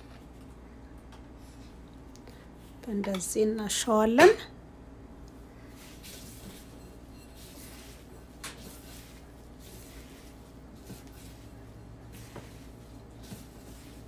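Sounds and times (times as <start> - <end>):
low room hum: 0.0 - 14.0
soft squishing of minced meat: 7.4 - 14.0.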